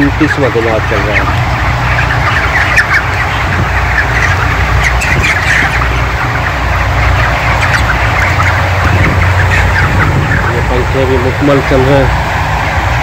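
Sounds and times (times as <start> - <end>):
chickens squawking and chirping: 0.0 - 13.0
ventilation fans humming: 0.0 - 13.0.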